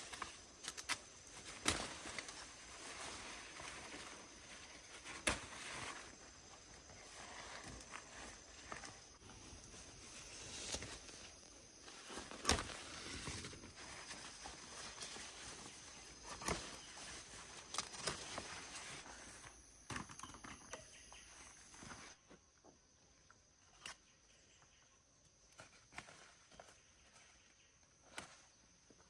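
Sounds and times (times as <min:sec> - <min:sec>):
leaves and stems rustling: 0:00.0 - 0:19.6.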